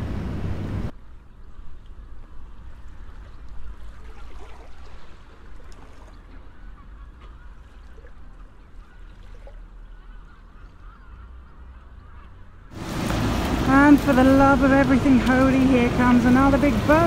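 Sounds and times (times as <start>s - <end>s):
low wind rumble: 0.0s - 9.0s, 9.7s - 17.0s
faint bird calls: 6.1s - 12.8s.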